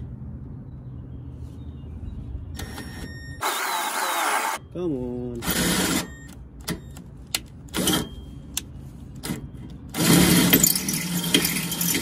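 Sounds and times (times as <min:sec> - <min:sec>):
cordless drill drilling steel: 0:03.4 - 0:04.6.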